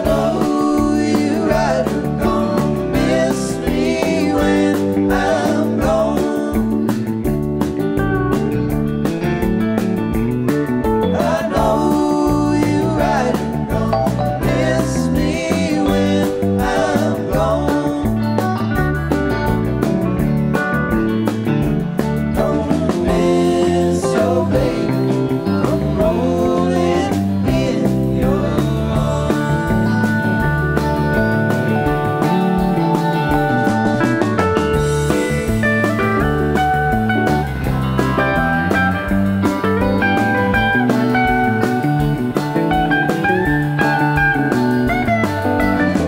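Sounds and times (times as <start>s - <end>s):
voices singing in harmony: 0.0s - 7.2s, 11.0s - 18.6s, 22.2s - 34.1s
electric guitar bent notes: 0.0s - 46.0s
live rock band playing: 0.0s - 46.0s
steady drum beat: 0.0s - 46.0s.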